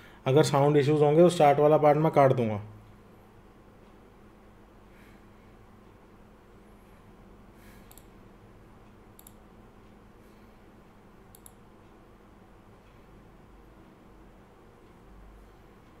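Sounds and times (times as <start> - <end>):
low room hum: 0.0 - 16.0
computer mouse double clicks: 9.2 - 9.4.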